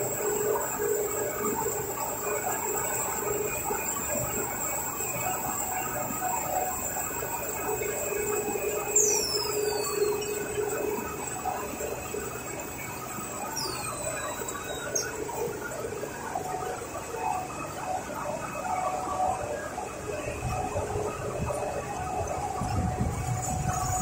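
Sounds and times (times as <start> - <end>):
machine high whine: 0.0 - 24.0.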